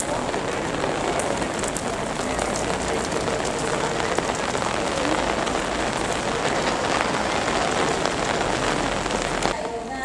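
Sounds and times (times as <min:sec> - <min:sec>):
rain on stone paving: 0:00.0 - 0:10.0.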